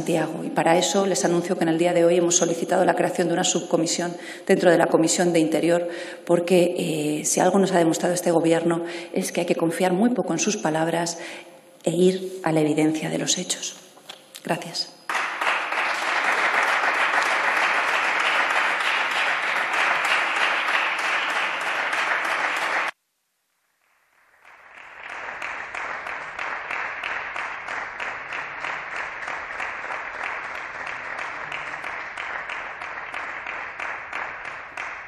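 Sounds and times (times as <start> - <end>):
audience applause: 15.1 - 23.0, 24.4 - 35.0.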